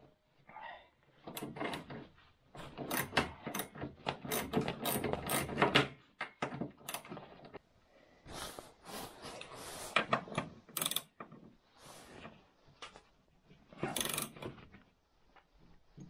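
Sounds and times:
socket ratchet clicking: 0:10.7 - 0:11.2, 0:13.9 - 0:14.4.

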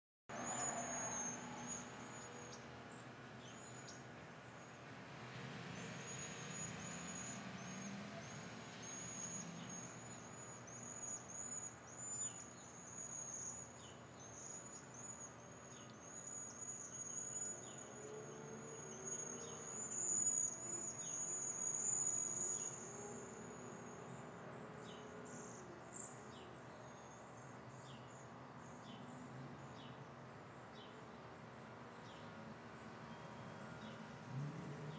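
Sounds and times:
birds high trilled whistles: 0:08.8 - 0:18.0, 0:18.8 - 0:23.0.

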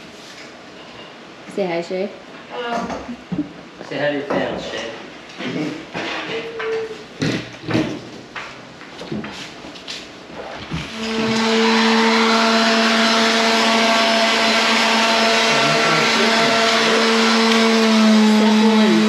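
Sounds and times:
electric motor humming: 0:10.8 - 0:19.0.

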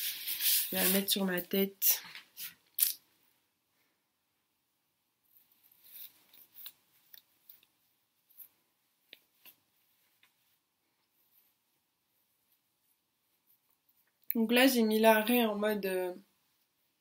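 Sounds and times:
wig hair rustling: 0:00.0 - 0:02.6, 0:05.2 - 0:14.2.

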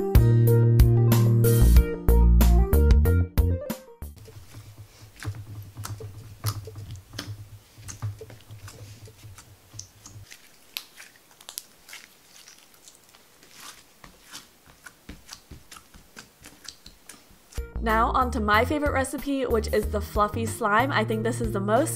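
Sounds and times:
slime squeezed by hand: 0:04.2 - 0:17.6.

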